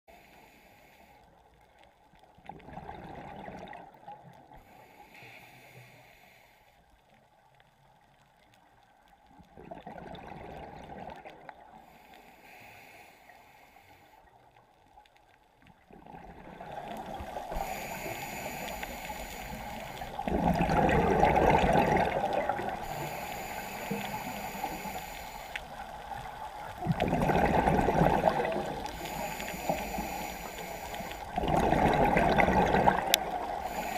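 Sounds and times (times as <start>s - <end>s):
faint regulator hiss: 0.1s - 2.0s, 4.5s - 7.3s, 11.7s - 15.4s, 17.0s - 20.3s, 22.5s - 26.8s, 28.5s - 31.6s, 32.9s - 33.9s
exhaled bubbles gurgling underwater: 2.1s - 4.8s, 9.2s - 12.0s, 15.6s - 33.9s.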